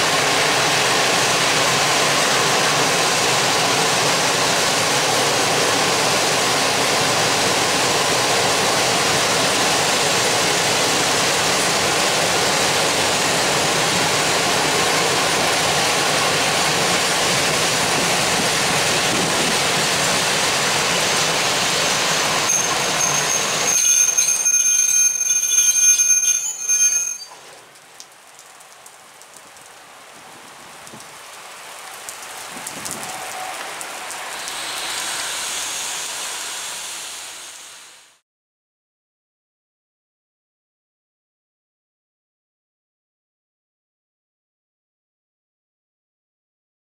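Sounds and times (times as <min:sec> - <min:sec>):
train wheels rolling on rail: 0:00.0 - 0:27.5, 0:32.4 - 0:38.0
high multi-tone wheel squeal: 0:21.1 - 0:27.5, 0:34.3 - 0:37.8.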